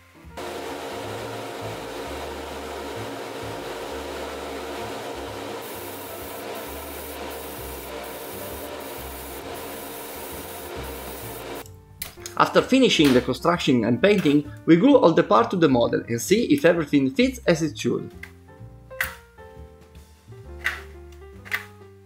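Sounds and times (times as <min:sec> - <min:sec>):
extractor fan humming: 0:00.3 - 0:11.6
airbrush hissing: 0:05.6 - 0:11.6.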